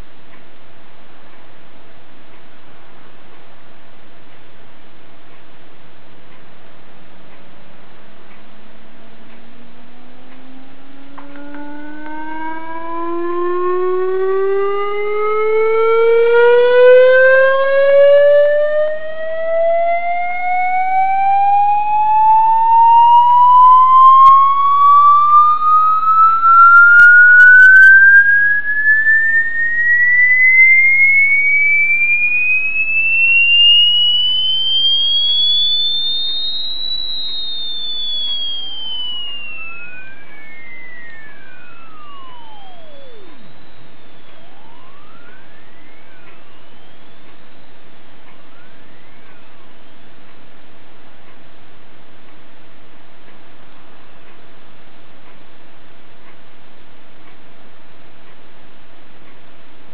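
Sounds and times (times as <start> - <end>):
rising test tone sweep: 9.0 - 49.8
tone gliding down: 9.5 - 47.8.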